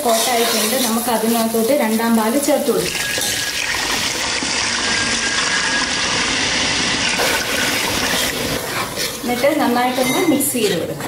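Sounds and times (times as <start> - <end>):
liquid pouring into a pan: 2.8 - 9.2.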